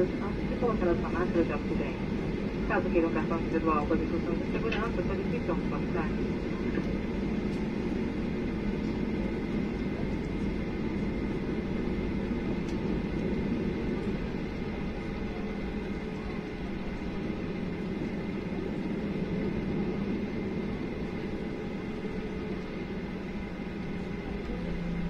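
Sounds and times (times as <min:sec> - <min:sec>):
airplane cabin engine hum: 0:00.0 - 0:25.0.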